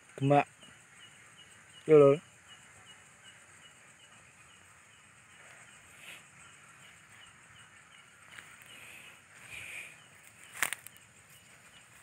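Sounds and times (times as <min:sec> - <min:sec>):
insect chirping faintly: 0:00.0 - 0:12.0
faint rustle: 0:05.3 - 0:12.0.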